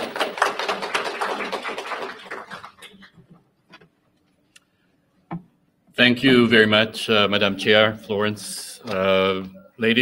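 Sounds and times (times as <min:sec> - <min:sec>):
audience applauding: 0:00.0 - 0:03.3.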